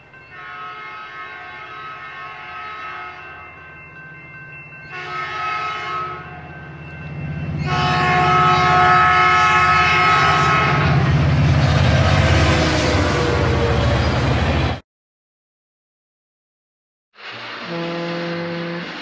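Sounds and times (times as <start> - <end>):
train horn chord: 0.3 - 3.4, 4.9 - 6.5, 7.5 - 11.1, 17.2 - 19.0.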